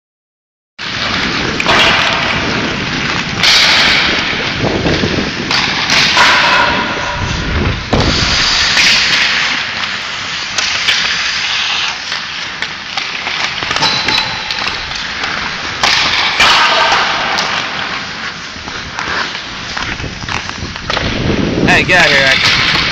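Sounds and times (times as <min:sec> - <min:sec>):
skate blades scraping on ice: 0:00.8 - 0:22.9
stick knocking puck: 0:12.0 - 0:17.8.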